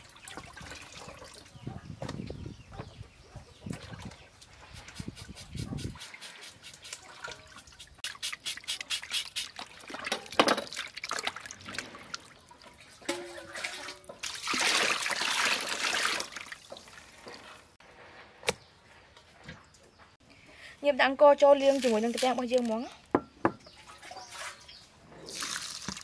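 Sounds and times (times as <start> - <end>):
water sloshing in a basin: 0.0 - 1.6, 6.0 - 17.8, 23.6 - 26.0
knife scraping fish: 4.8 - 7.0.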